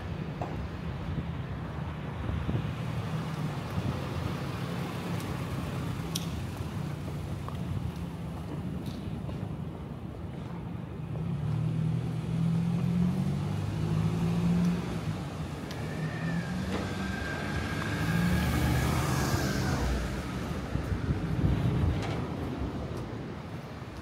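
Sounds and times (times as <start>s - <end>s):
vehicle engine accelerating: 11.1s - 22.4s.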